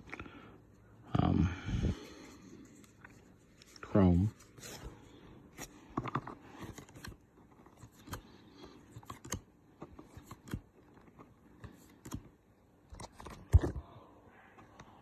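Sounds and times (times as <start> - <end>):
cards clicking and scraping: 2.4 - 13.8.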